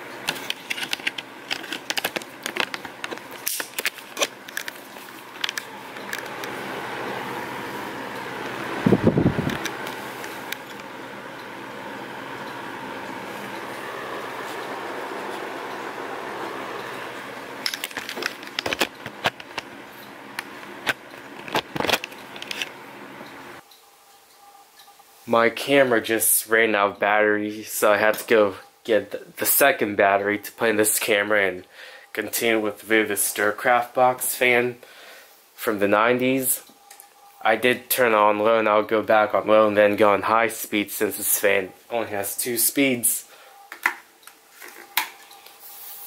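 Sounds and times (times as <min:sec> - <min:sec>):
box fan whirring: 0:00.0 - 0:23.6.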